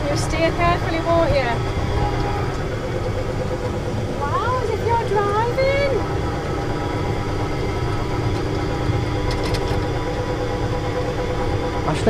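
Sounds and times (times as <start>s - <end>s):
ride car humming on track: 0.0s - 12.0s.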